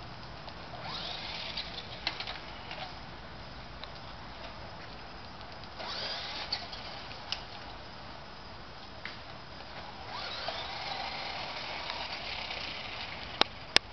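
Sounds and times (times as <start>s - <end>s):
toy car motor whirring: 0.8s - 2.9s, 5.8s - 7.1s, 10.0s - 13.6s.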